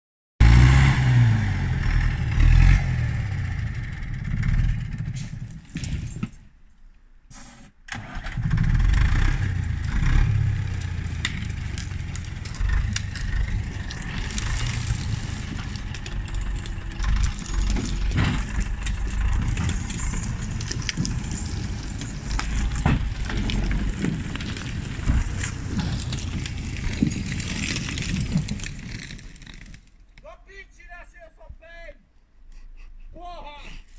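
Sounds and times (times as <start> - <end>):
diesel engine under load: 0.4 - 6.4, 7.9 - 30.3
clanks and cracks: 10.7 - 30.3.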